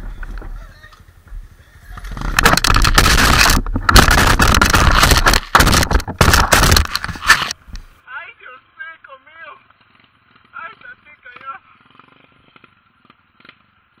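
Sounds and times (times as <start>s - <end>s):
rubbing and scraping on microphone: 0.0s - 8.0s.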